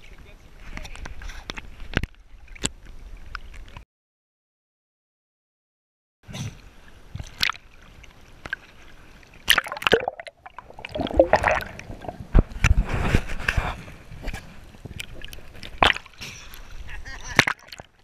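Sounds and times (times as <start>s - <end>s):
underwater sloshing and gurgling: 6.5s - 18.0s
knocks and splashes: 9.4s - 13.6s, 14.2s - 16.4s, 17.3s - 18.0s.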